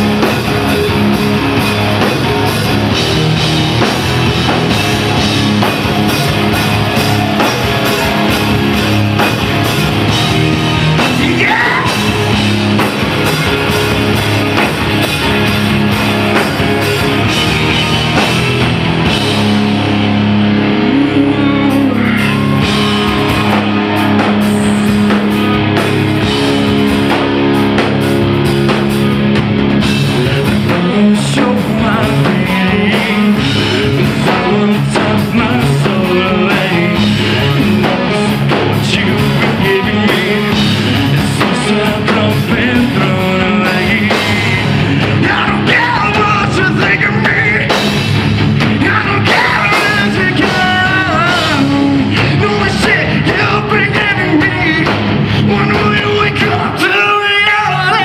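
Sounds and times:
rock band playing live: 0.0 - 58.0
man singing into a microphone: 10.7 - 12.2, 20.7 - 23.1, 30.2 - 47.9, 48.8 - 58.0.

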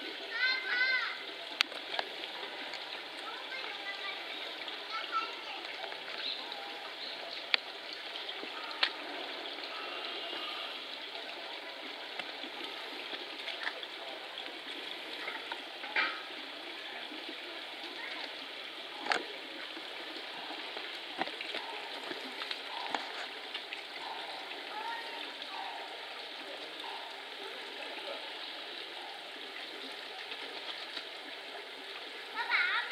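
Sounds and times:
faint voices: 0.0 - 32.9
rushing noise like running water: 0.0 - 32.9.

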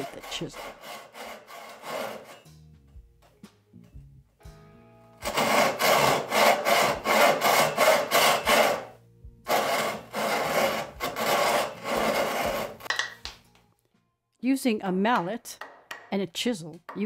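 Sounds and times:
hand saw cutting wood: 0.0 - 2.5, 5.2 - 12.9.

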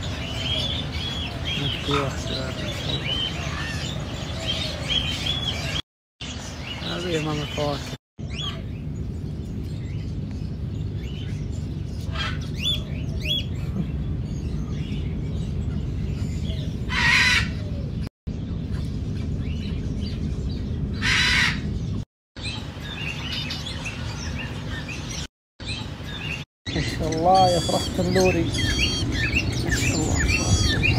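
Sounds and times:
birds chirping and whistling: 0.0 - 30.9
steady low hum: 8.2 - 22.0
bird squawks: 12.0 - 13.5, 16.9 - 17.7, 21.0 - 21.7, 25.7 - 30.9.

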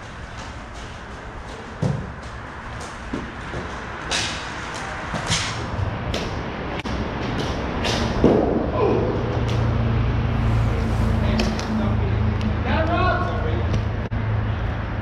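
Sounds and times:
steady rink hum: 0.0 - 8.7, 9.4 - 13.1.

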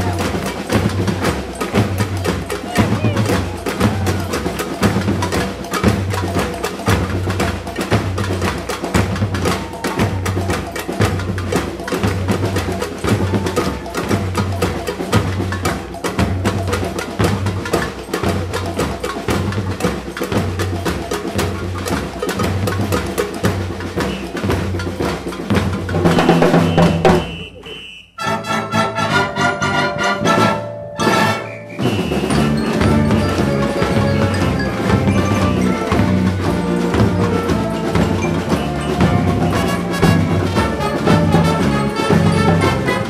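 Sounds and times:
drum kit and percussion: 0.0 - 43.0
quick repeated high notes: 19.8 - 43.0
wind band playing: 25.9 - 43.0.

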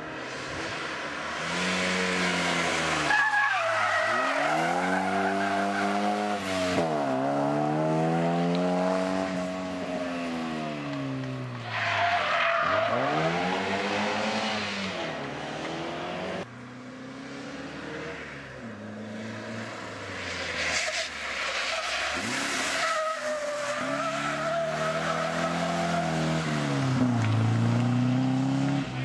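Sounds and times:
rally car engines revving: 0.0 - 29.0
tyre squeal: 3.0 - 6.9, 20.6 - 26.4.

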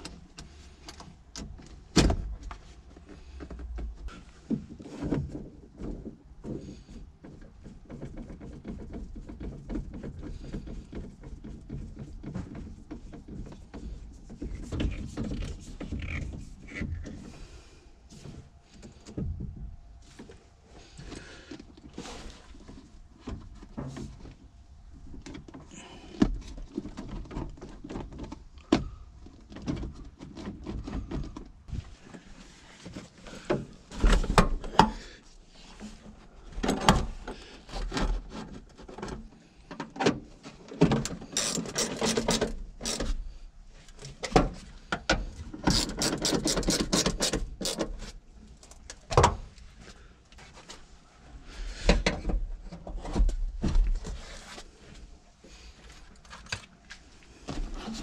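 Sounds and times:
plastic trim rustling and scraping: 40.4 - 43.2.

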